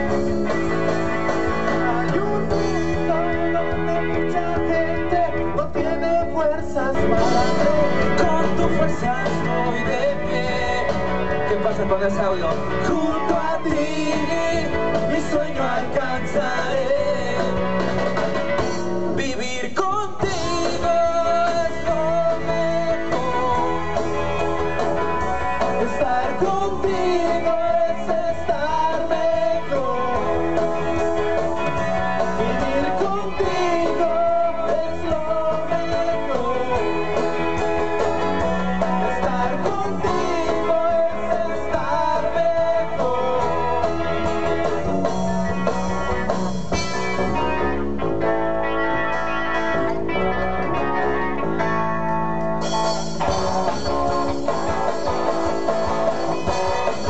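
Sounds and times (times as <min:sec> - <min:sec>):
rock band playing: 0:00.0 - 0:57.0
lead guitar bending notes: 0:42.8 - 0:57.0.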